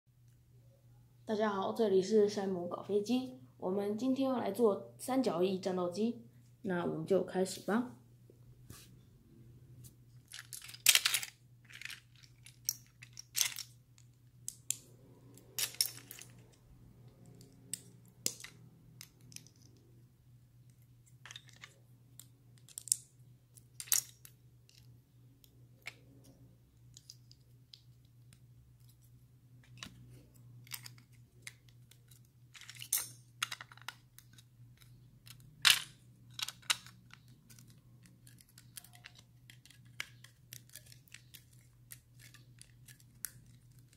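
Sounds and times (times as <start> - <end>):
faint low hum: 0.2 - 43.9
plastic bricks clicking and clattering: 10.2 - 14.8, 15.4 - 19.9, 21.1 - 24.9, 30.6 - 43.9.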